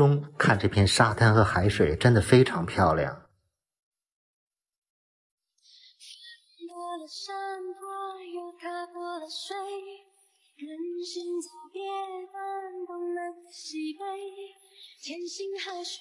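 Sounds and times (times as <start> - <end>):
high voice singing slow melody: 10.6 - 16.0.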